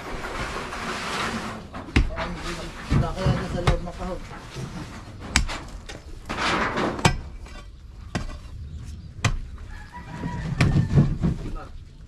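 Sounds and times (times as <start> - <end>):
loose dirt and stones shifting: 0.0 - 12.0
metal bar striking rocky soil: 4.7 - 8.6.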